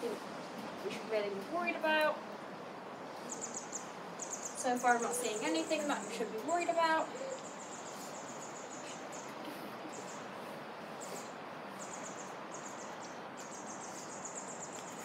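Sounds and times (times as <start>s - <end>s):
outdoor background hiss: 0.0s - 15.0s.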